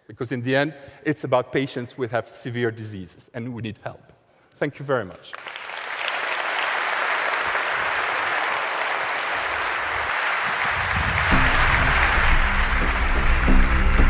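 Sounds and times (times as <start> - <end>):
audience applauding: 5.3 - 14.0
music with low bass: 11.2 - 14.0.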